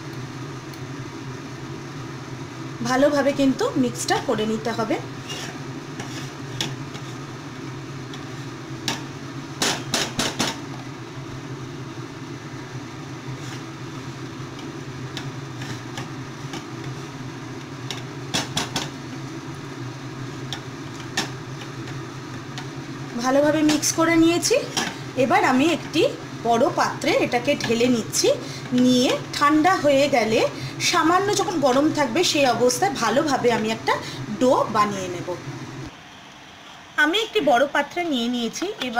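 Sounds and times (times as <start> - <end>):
spatula scraping a frying pan: 5.1 - 9.0, 13.2 - 17.2.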